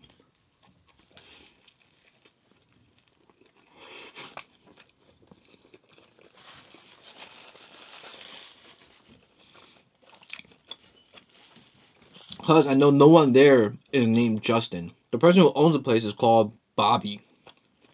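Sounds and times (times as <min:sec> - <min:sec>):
person chewing sandwich: 0:00.1 - 0:12.4.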